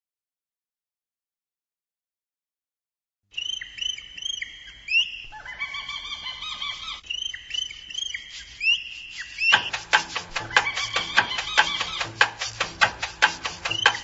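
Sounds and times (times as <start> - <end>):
puppies whimpering: 4.7 - 8.0
background music with a beat: 9.5 - 14.0.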